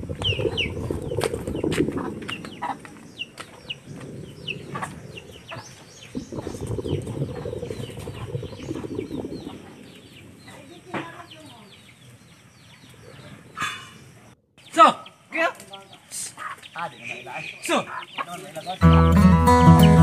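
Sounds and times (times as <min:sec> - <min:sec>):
low rough noise: 0:00.0 - 0:10.8
sharp crackles: 0:00.0 - 0:12.2
birds chirping: 0:00.0 - 0:20.0.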